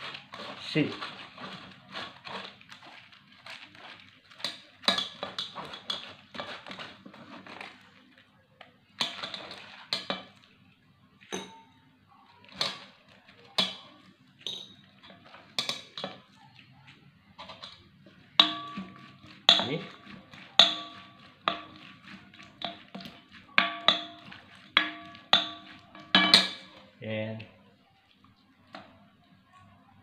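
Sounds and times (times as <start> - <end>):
metal strainer clinking on glass bowl: 18.4 - 21.9, 23.6 - 26.8.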